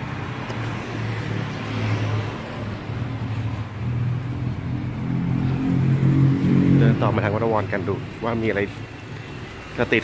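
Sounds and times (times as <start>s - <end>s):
vehicles passing on road: 0.0s - 10.0s.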